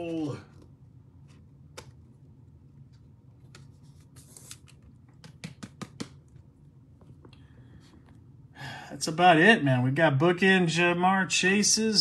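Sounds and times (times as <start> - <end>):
cards and plastic holders handled: 0.0 - 2.2, 2.8 - 6.4.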